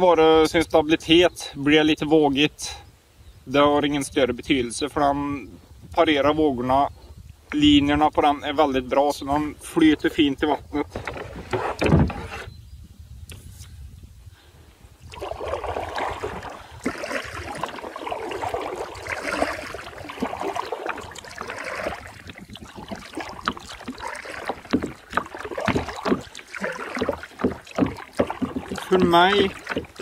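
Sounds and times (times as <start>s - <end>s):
kayak paddle swishing through water: 9.6s - 12.5s, 15.0s - 30.0s
water splashing and dripping: 15.1s - 30.0s.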